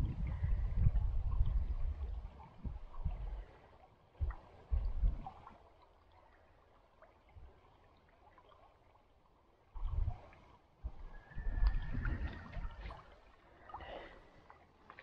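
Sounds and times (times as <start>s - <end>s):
low microphone rumbles: 0.0s - 3.4s, 4.2s - 5.4s
stream trickling over rocks: 0.0s - 15.0s.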